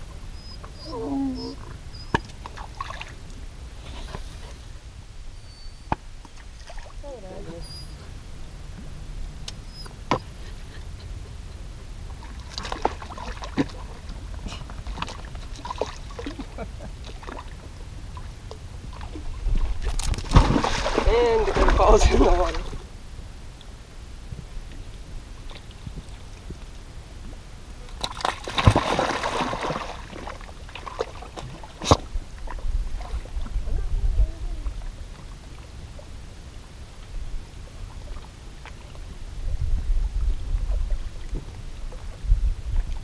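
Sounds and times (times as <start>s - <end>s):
steady low rumble: 0.0s - 28.0s, 31.6s - 43.0s
dog splashing in water: 19.9s - 22.8s, 28.0s - 32.1s.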